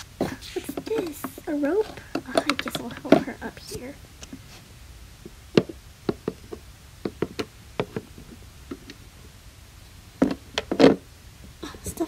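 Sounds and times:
plastic toys knocking on hard surface: 0.6 - 3.4, 5.5 - 8.9, 10.2 - 11.0.

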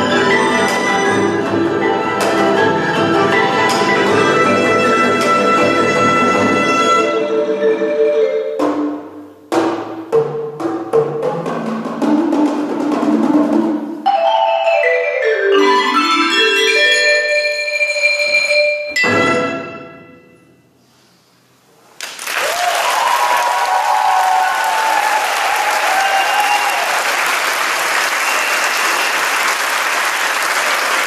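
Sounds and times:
orchestra with mallet percussion: 0.0 - 9.5, 14.0 - 20.4
audience applause: 22.0 - 31.0.

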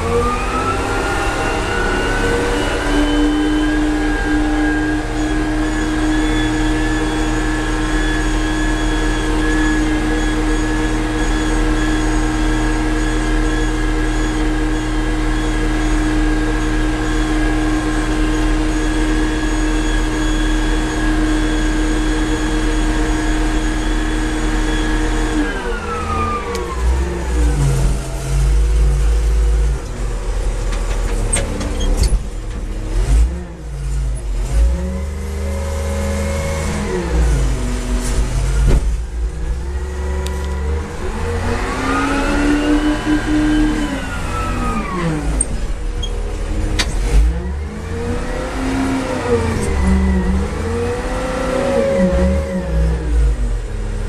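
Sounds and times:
diesel engine running at high revs: 0.0 - 54.0.

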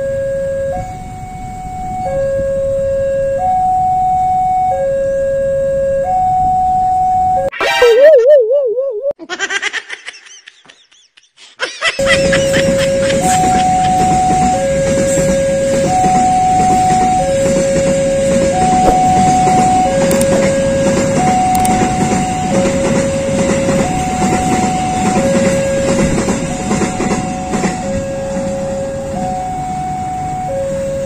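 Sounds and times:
train coaches rumbling on rails: 12.0 - 31.0.

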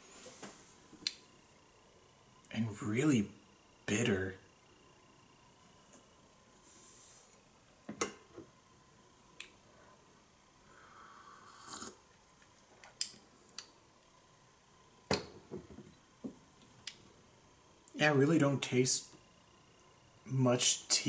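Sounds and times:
person sipping tea: 10.7 - 12.1.

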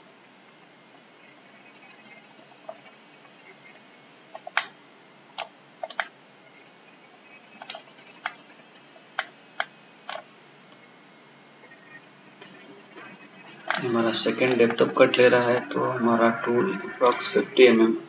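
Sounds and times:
faint room hiss: 0.0 - 18.0
computer mouse clicks: 3.6 - 4.8, 5.4 - 6.1, 7.5 - 8.4, 9.2 - 10.8, 17.0 - 17.3.

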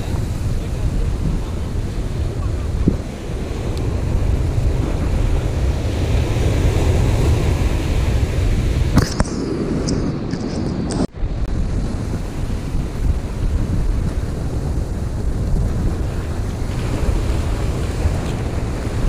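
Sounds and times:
surf breaking on beach: 0.0 - 19.0
wind buffeting microphone: 0.0 - 19.0.

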